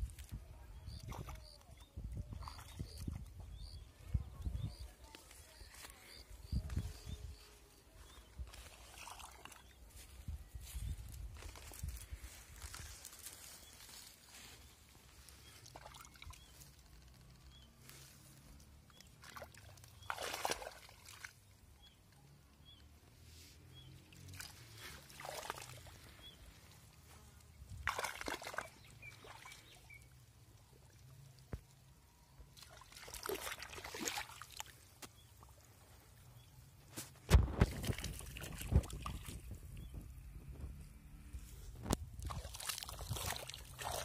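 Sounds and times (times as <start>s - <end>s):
water trickling along a furrow: 0.0s - 44.0s
water splashing and sloshing: 8.2s - 10.3s, 12.6s - 17.2s, 18.1s - 22.0s, 23.9s - 27.0s, 27.6s - 40.0s, 41.8s - 44.0s.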